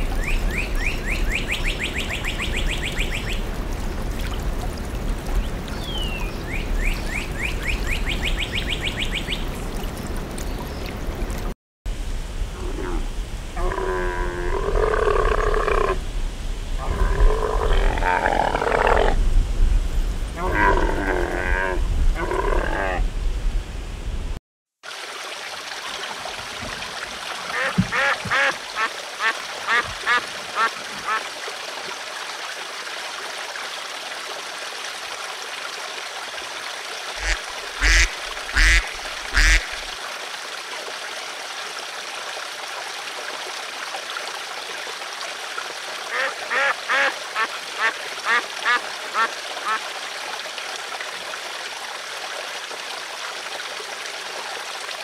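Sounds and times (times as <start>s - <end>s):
flowing water: 0.0s - 23.0s, 24.8s - 55.0s
camel grunting and groaning: 20.4s - 23.0s
ducks quacking: 27.5s - 31.2s, 37.2s - 39.8s, 46.1s - 49.8s.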